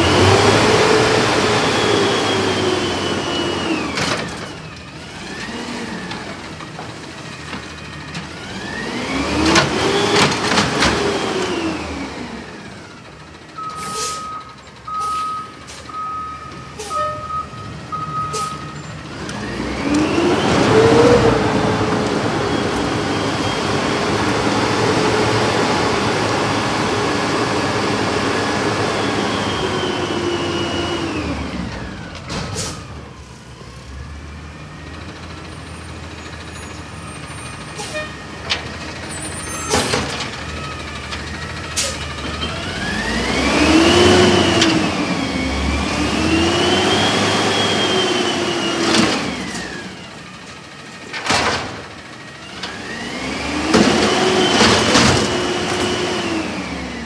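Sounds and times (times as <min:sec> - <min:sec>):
garbage truck engine revving: 0:00.0 - 0:57.0
reversing alarm beeping: 0:13.6 - 0:19.0.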